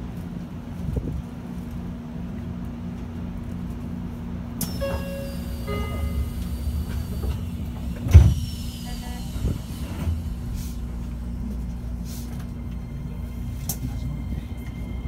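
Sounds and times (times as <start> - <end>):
train rumbling on rails: 0.0 - 15.0
high-pitched whine: 4.6 - 15.0
short falling high tone: 4.7 - 8.0
heavy thump: 6.0 - 8.5.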